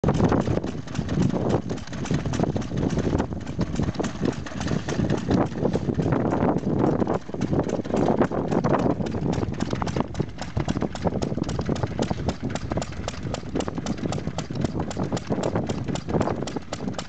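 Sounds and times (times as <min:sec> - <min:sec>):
engine clattering clicks: 0:00.0 - 0:17.0
low heavy engine running: 0:00.0 - 0:17.0.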